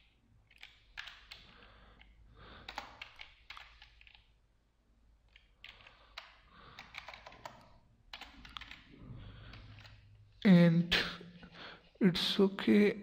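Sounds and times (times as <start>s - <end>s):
typing on computer keyboard: 0.0s - 4.3s, 5.3s - 8.9s, 9.5s - 10.0s.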